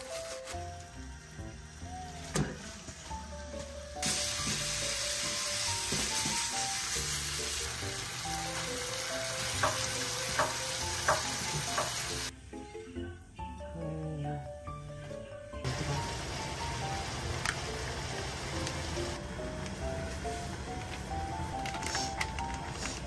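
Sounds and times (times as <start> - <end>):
pork sizzling in a wok: 0.0 - 12.3, 15.7 - 21.2.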